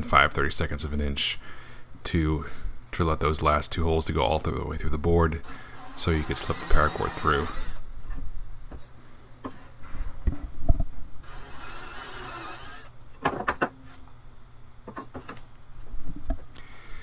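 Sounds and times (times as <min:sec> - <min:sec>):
cordless drill boring wood: 0:05.8 - 0:07.8, 0:11.2 - 0:12.9.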